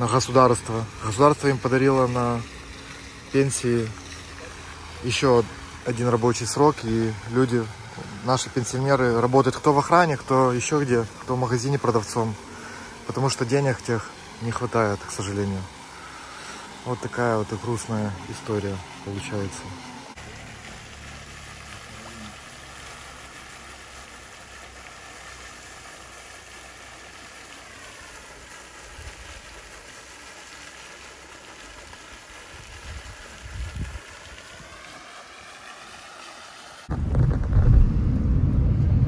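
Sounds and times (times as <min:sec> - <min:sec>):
deep rumble: 0:36.9 - 0:39.0
tyre and road noise: 0:36.9 - 0:39.0.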